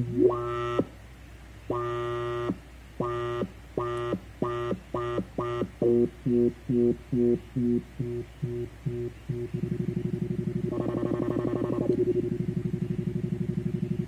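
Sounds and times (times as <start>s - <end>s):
buzzy synthesizer drone pulses: 0.0s - 0.9s, 1.7s - 14.0s.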